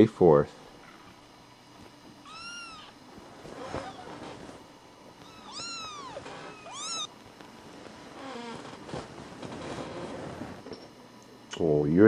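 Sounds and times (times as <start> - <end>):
kittens mewing: 2.2 - 3.0, 5.2 - 7.1.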